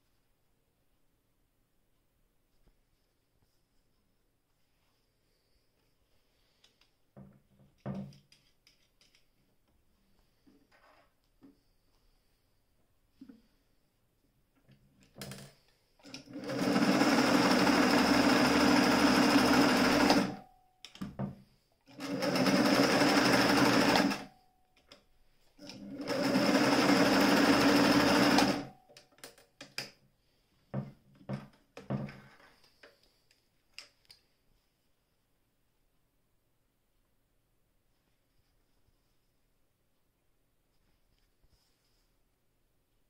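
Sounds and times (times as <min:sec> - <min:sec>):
sewing machine stitching: 0:16.0 - 0:20.4, 0:21.9 - 0:24.3, 0:25.6 - 0:28.8.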